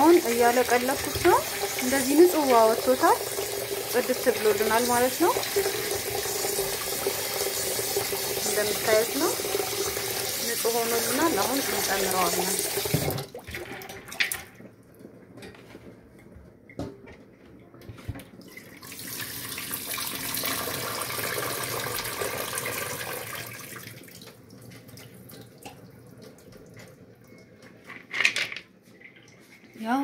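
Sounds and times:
water pouring into sink: 0.0 - 14.6, 18.4 - 27.4.

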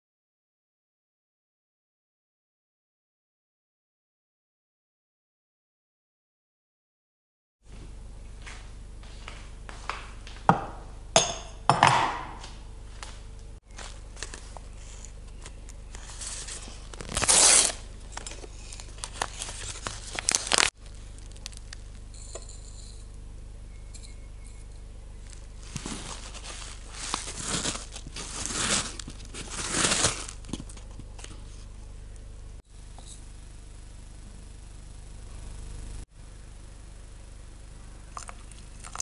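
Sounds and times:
packaging rustling and tearing: 13.7 - 22.0, 25.2 - 31.6.

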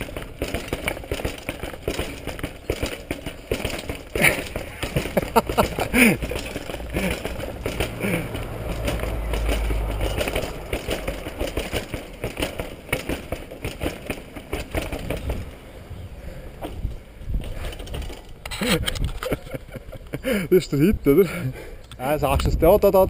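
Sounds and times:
bike clattering down stone stairs: 0.0 - 20.5.

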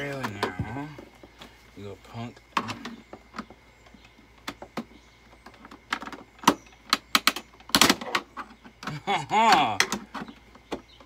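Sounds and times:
hand tool knocking and prying: 8.4 - 10.9.

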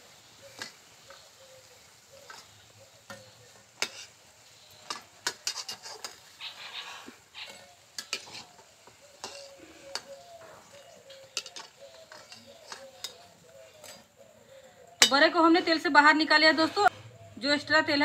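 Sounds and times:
food frying in oil: 0.0 - 14.2.

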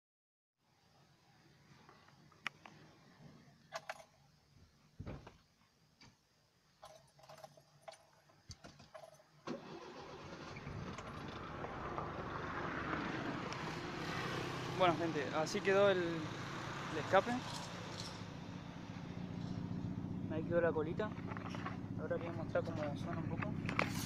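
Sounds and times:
keys jingling at ignition: 6.8 - 8.2, 17.3 - 18.2
car engine starting and running: 9.4 - 24.0.

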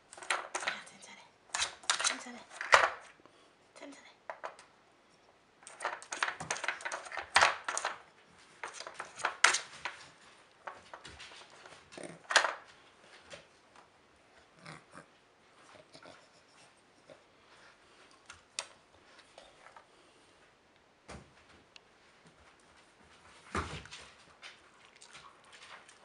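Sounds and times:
hard plastic pieces clacking: 0.1 - 0.8, 5.6 - 8.0, 8.6 - 12.7.

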